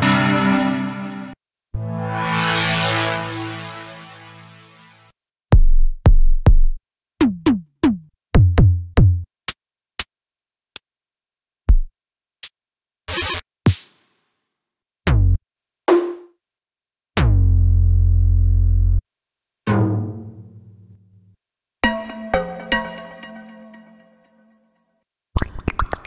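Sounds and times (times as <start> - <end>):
synth chord tail: 0.0 - 5.1
synth kick drums: 5.6 - 9.3.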